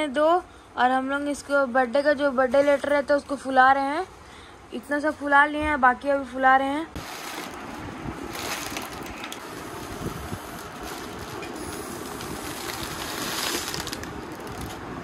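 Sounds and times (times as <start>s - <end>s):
air rushing into balloons: 7.0s - 14.7s.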